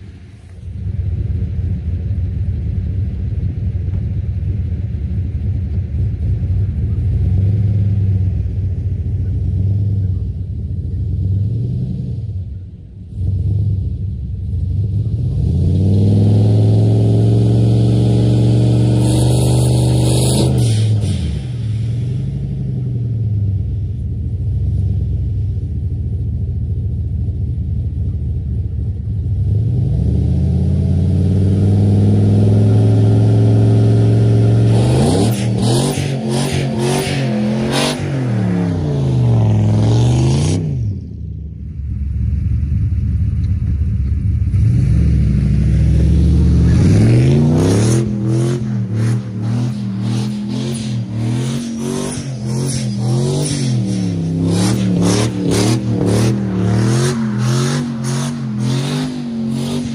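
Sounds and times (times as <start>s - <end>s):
truck engine revving: 14.7s - 23.1s, 29.5s - 41.5s, 44.3s - 59.9s.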